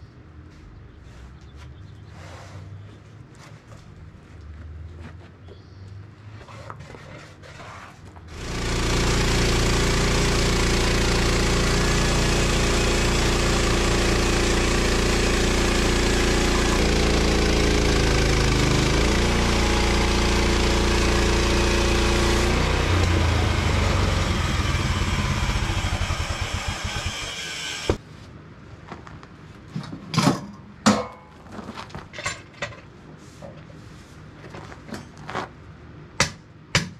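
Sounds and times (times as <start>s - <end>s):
band blade sawing log: 6.4s - 28.0s
sawmill engine running: 8.3s - 28.0s.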